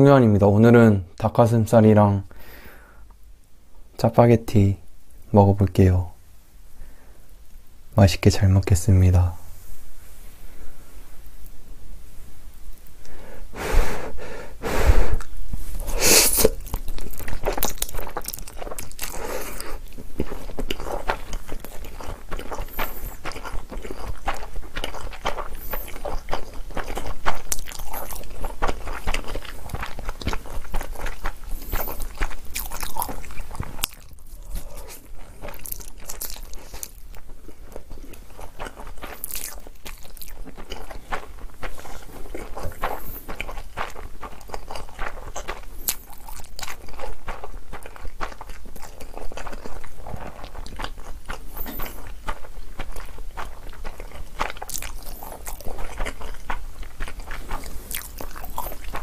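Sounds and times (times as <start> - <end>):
mouth sounds eating noodles: 12.9 - 59.0
wet chewing: 15.1 - 59.0.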